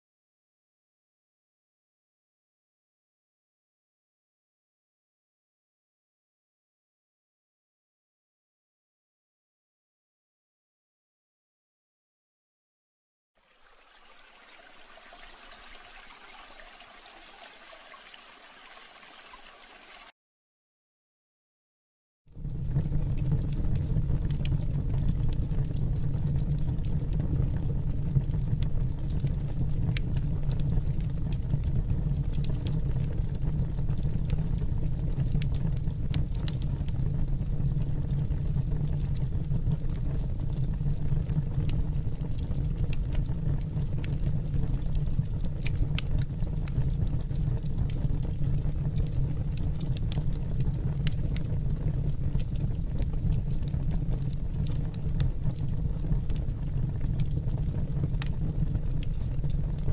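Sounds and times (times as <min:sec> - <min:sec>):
wood fire rumbling and crackling: 0:22.3 - 0:59.9.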